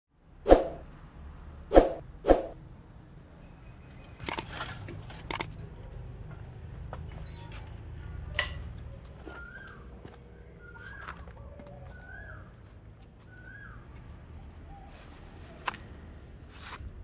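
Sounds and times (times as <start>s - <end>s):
bicycle rolling with clicks and rattles: 3.9s - 9.7s.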